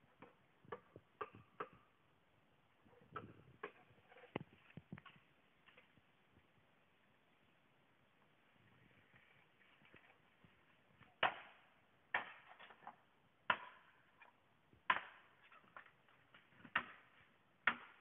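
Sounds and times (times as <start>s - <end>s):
blade chopping bamboo: 14.9s - 15.3s, 17.6s - 18.0s.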